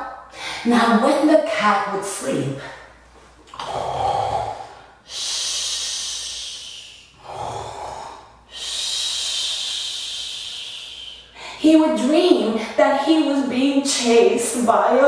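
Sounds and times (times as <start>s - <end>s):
woman breathing loudly: 4.3s - 11.6s.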